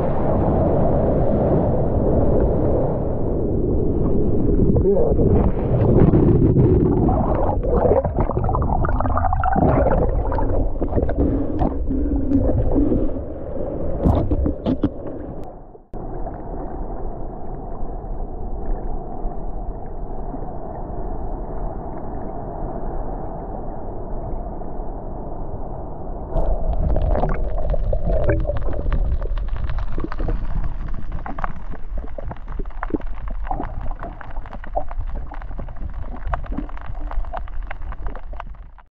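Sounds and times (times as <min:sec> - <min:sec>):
underwater rushing and gurgling water: 0:00.0 - 0:38.9
clicks and crackles: 0:26.4 - 0:38.9.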